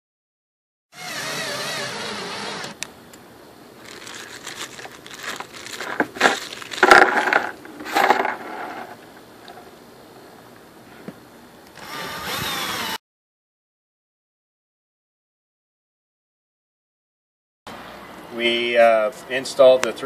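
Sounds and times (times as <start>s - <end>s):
plastic bag of screws rustling: 3.8s - 8.8s.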